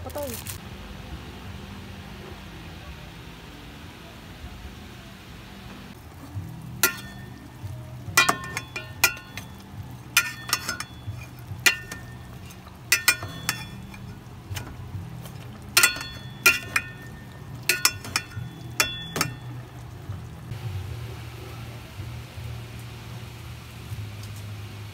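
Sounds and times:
low steady hum: 0.0s - 24.9s
metal spoon clinking on pot: 6.8s - 19.8s.

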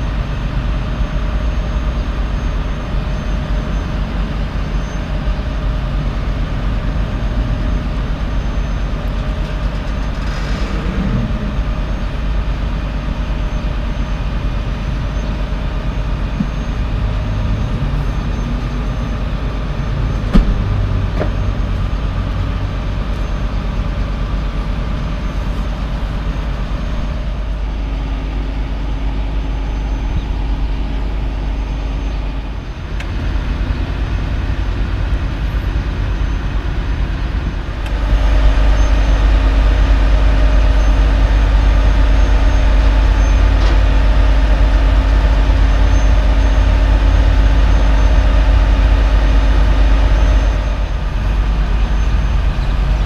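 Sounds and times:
diesel truck engine running: 0.0s - 53.0s
car door shutting: 20.2s - 21.4s.

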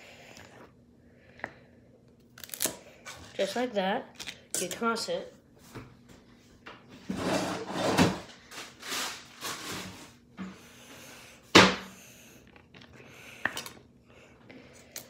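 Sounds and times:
rustles and scrapes: 6.9s - 10.2s.

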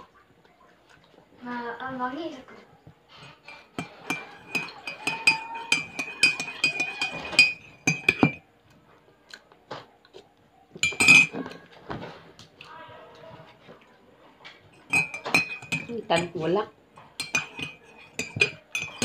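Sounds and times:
spoon clinking in ceramic mug: 3.3s - 8.4s, 10.8s - 11.4s, 14.7s - 16.4s, 17.0s - 19.0s.

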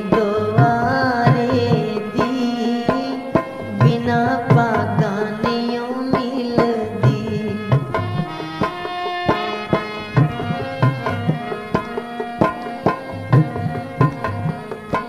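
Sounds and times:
harmonium melody: 0.0s - 15.0s
hand drum beat: 0.2s - 15.0s.

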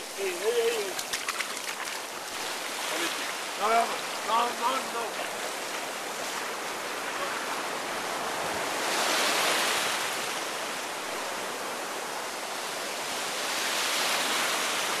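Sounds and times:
surf washing up sand: 0.0s - 15.0s.

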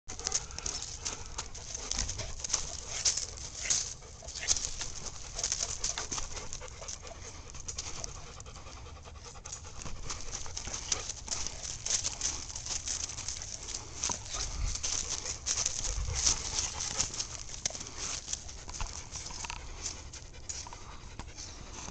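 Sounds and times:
dog panting: 0.1s - 21.9s.

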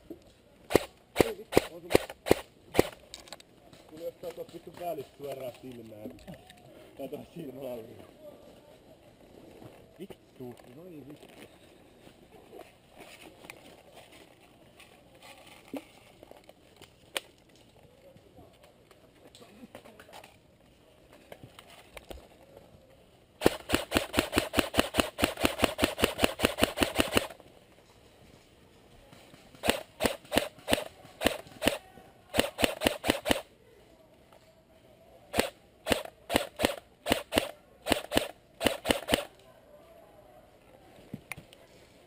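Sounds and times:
airsoft gun firing rapid shots: 0.7s - 3.0s, 23.4s - 27.4s, 29.5s - 33.5s, 35.3s - 39.3s.

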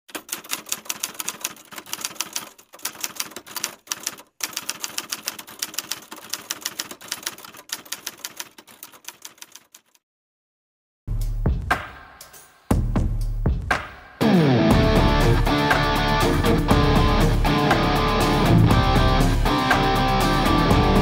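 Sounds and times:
typewriter key clacks: 0.1s - 10.0s.

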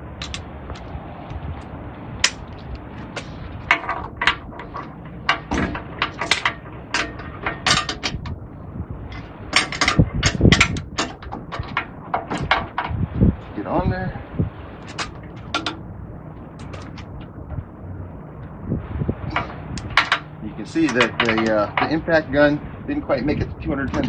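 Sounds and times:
torque wrench clicking and clinking: 0.2s - 0.4s, 9.1s - 12.8s.

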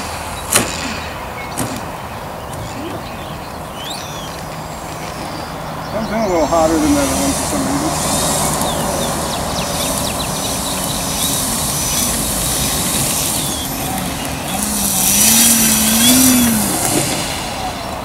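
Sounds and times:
model airplane motor whining: 3.9s - 18.0s.

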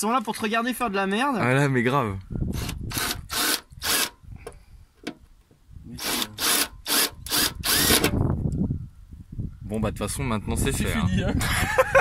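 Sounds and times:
cordless drill cutting sheet metal: 2.5s - 4.2s, 6.0s - 8.2s.

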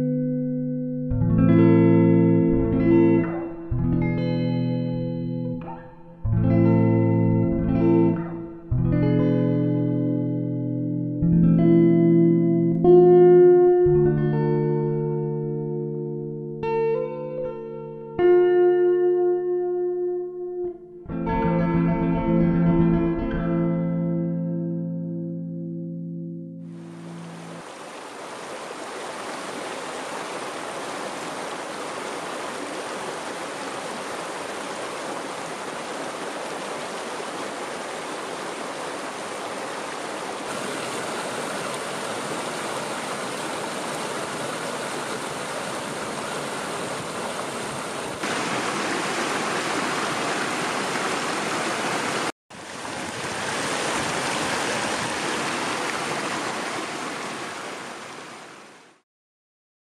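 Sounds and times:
rushing stream water: 26.7s - 59.0s.

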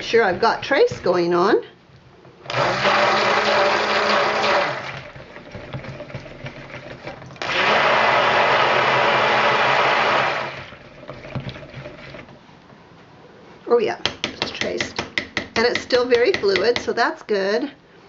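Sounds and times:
stick blender running: 2.4s - 12.3s.

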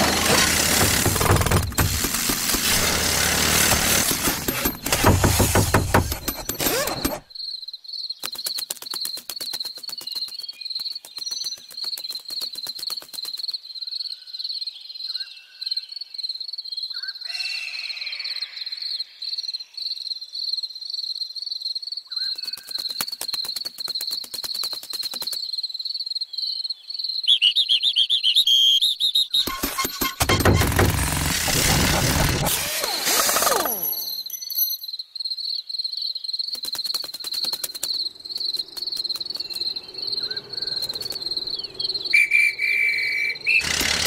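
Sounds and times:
rapid clicking: 29.5s - 33.6s, 36.6s - 39.8s, 43.6s - 44.0s
cricket chirping: 33.4s - 43.6s.

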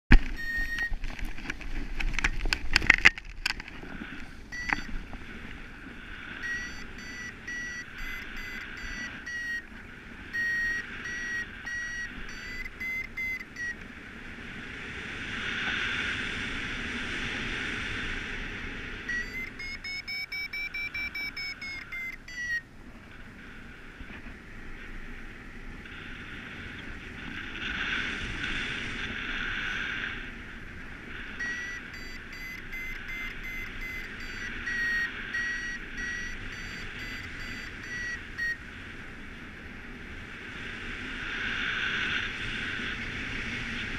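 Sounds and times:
variometer beeping: 0.1s - 1.2s, 4.4s - 5.0s, 6.3s - 13.9s, 19.0s - 22.7s, 31.3s - 38.6s.

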